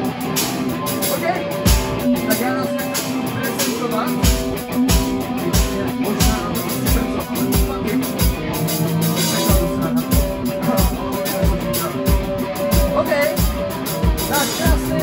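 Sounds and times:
live rock band playing: 0:00.0 - 0:15.0
kick drum beat: 0:01.7 - 0:02.1, 0:04.2 - 0:08.5.

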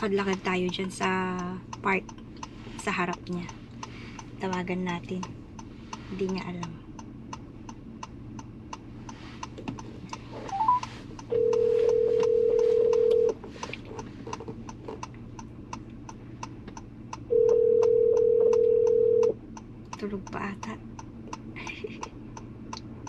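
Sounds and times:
phone ringback tone: 0:10.5 - 0:13.4, 0:17.3 - 0:19.3.

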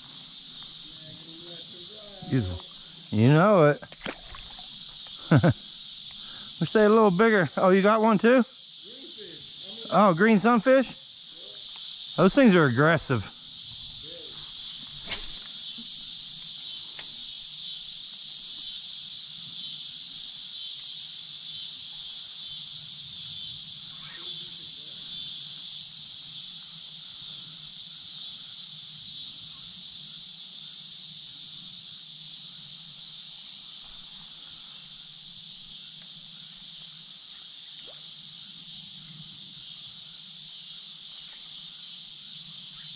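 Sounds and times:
insects shrilling: 0:00.0 - 0:42.9
faint ticks: 0:06.0 - 0:06.2, 0:11.7 - 0:11.9, 0:16.9 - 0:17.2.

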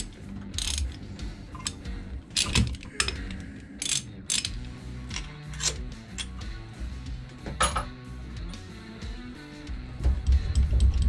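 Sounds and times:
ratchet wrench clicking: 0:00.0 - 0:06.5.

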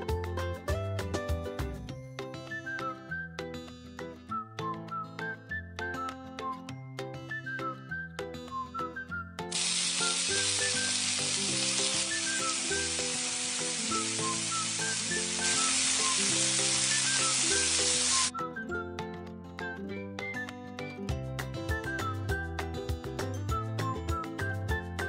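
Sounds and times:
light background music: 0:00.0 - 0:25.0
food sizzling: 0:09.5 - 0:18.3.

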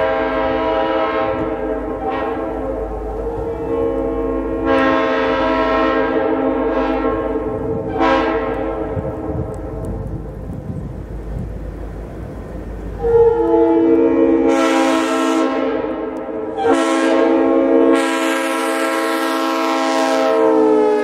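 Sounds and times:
air horn chord: 0:00.0 - 0:09.0, 0:13.0 - 0:21.0
low rumble: 0:06.1 - 0:14.5.

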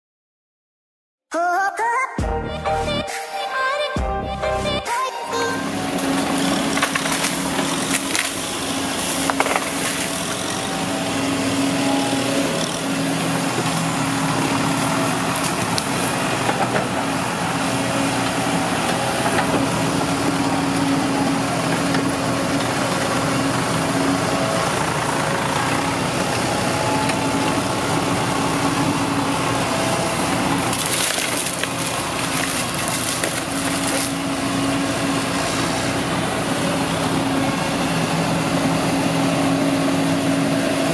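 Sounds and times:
excavator diesel engine running: 0:04.1 - 0:40.9
palm wood cracking and splintering: 0:06.0 - 0:17.1, 0:30.1 - 0:34.8.

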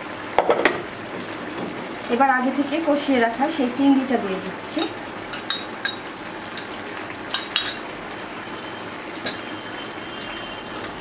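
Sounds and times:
spoon clinking and scraping dish: 0:04.8 - 0:06.7, 0:07.3 - 0:07.9, 0:09.2 - 0:09.5.

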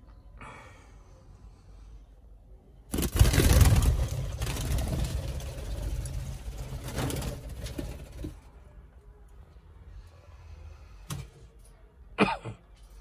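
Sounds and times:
bird wings flapping: 0:02.9 - 0:08.4.

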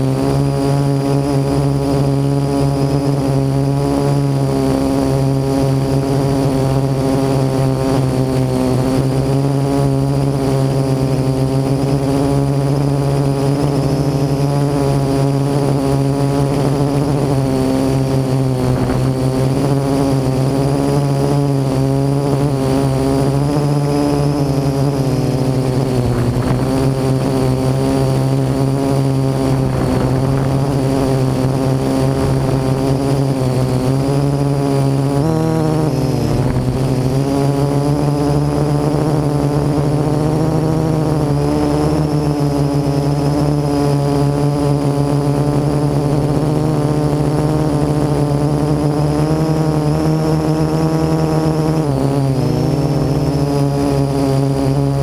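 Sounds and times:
drone propellers buzzing: 0:00.0 - 0:55.0.

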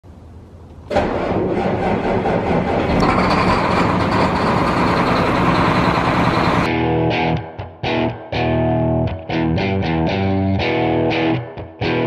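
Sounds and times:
farm machine engine starting: 0:00.9 - 0:06.7.

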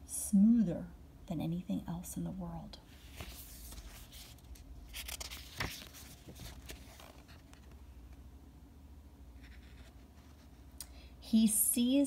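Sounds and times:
faint low hum: 0:00.0 - 0:12.0
book pages rustling: 0:02.9 - 0:08.2.

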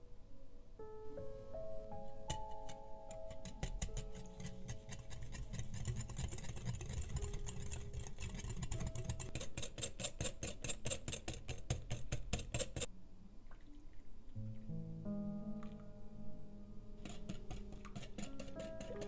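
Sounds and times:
whisk clicking in glass bowl: 0:02.3 - 0:12.9, 0:17.0 - 0:19.0.

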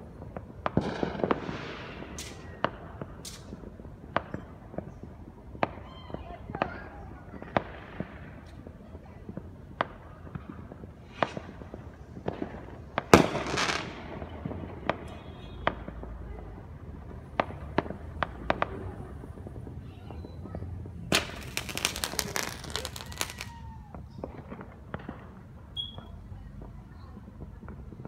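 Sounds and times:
fireworks bangs: 0:00.0 - 0:28.0.

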